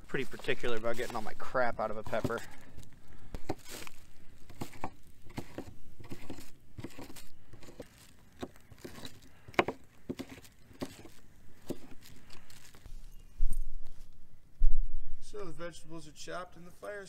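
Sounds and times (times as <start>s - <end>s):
knife chopping on wooden board: 8.4s - 12.0s.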